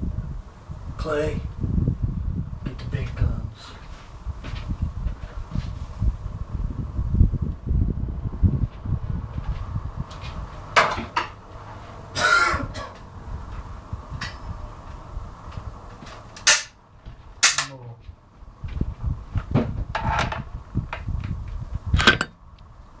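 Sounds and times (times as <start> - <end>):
microphone handling noise: 1.5 - 11.2, 18.0 - 22.3
man coughing: 12.2 - 13.0.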